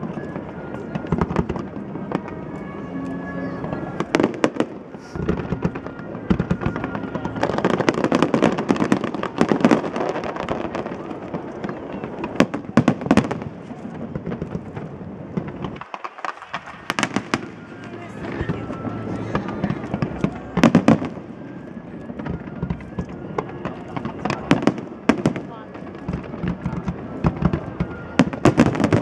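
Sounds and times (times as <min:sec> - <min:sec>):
fireworks bangs and crackles: 0:00.0 - 0:29.0
music playing: 0:15.6 - 0:29.0.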